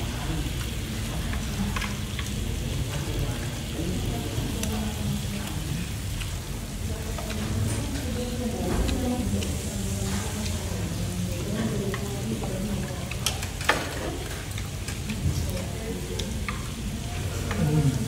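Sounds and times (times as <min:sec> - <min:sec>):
meat sizzling on a grill pan: 0:00.0 - 0:18.0
tongs clicking against pan: 0:11.8 - 0:15.2, 0:16.0 - 0:16.8.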